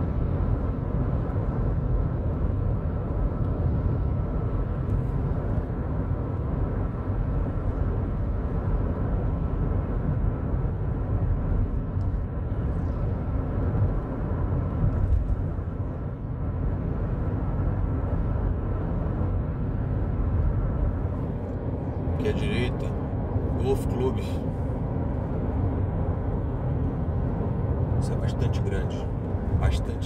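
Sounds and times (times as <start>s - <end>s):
car road noise rumble: 0.0s - 30.0s.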